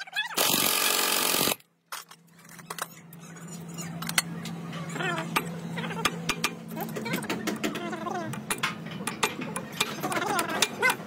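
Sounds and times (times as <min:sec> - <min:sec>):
power impact wrench: 0:00.4 - 0:01.6.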